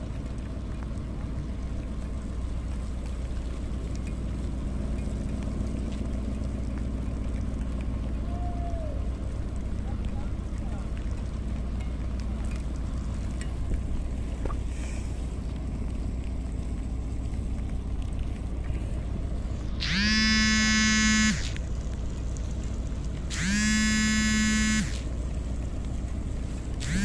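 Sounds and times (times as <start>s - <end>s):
low engine hum: 0.0s - 27.0s
ship's horn blasts: 19.8s - 21.6s, 23.3s - 25.1s.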